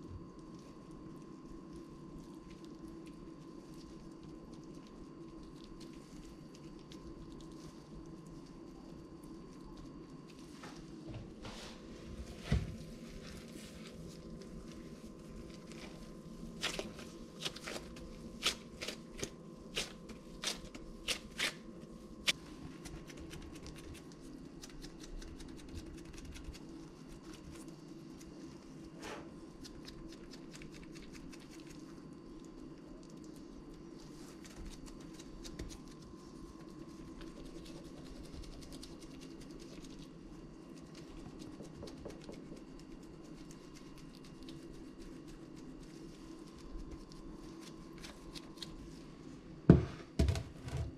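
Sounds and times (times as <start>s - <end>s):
low hum: 0.0s - 50.9s.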